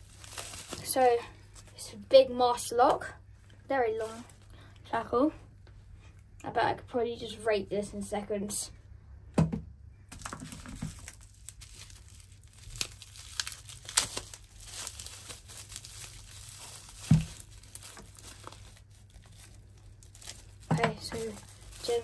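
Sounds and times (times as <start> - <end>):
bubble wrap crinkling: 0.0 - 2.0, 3.9 - 4.5, 10.1 - 22.0.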